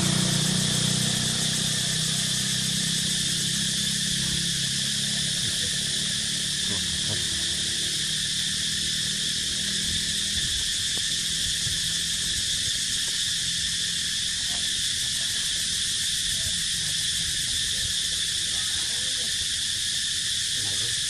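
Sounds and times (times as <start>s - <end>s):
low rumble of wind: 0.0s - 15.0s
insect chorus droning: 0.0s - 21.0s.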